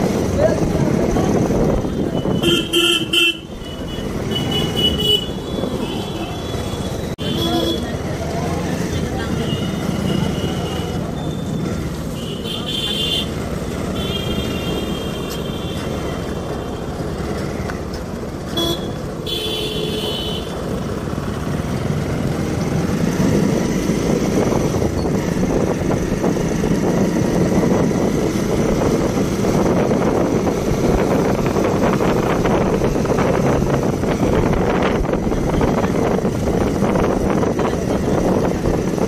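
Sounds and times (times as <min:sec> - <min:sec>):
wind noise on microphone: 0:00.0 - 0:03.2, 0:22.3 - 0:39.0
high horn toot: 0:02.2 - 0:07.8, 0:18.5 - 0:20.5.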